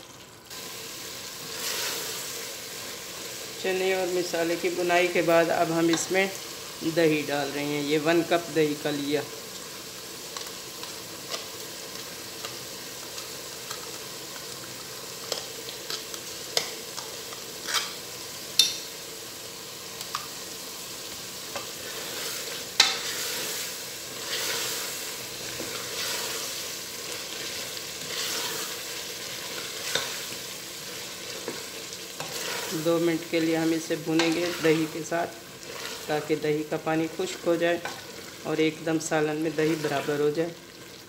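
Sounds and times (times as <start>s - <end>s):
chickpeas sizzling in oil: 0.0s - 41.0s
wooden spoon scraping: 25.5s - 26.5s, 28.0s - 28.8s, 31.3s - 32.9s, 35.6s - 36.2s.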